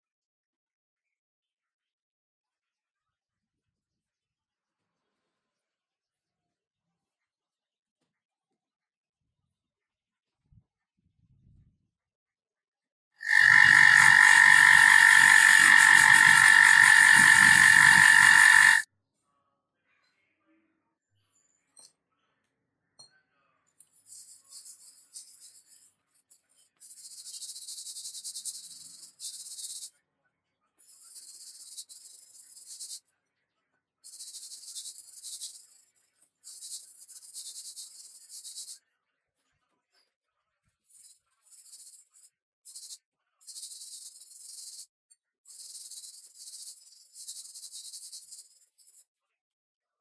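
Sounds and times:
cloth scrubbing steel saw blade: 13.2 - 18.8.

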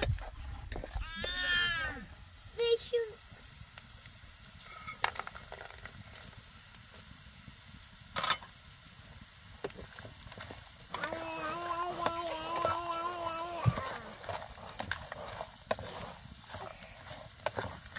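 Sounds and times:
vegetables sizzling in oil: 0.9 - 17.9.

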